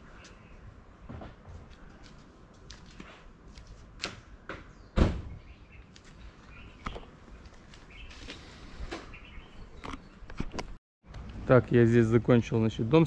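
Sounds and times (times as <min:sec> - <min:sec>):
loud thump: 0:05.0 - 0:05.4.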